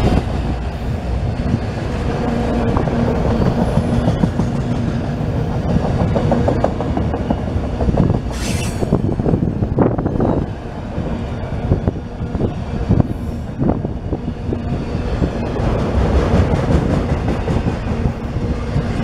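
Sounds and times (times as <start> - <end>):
freight train rumbling past: 0.0 - 19.0
brief hiss: 8.3 - 8.9.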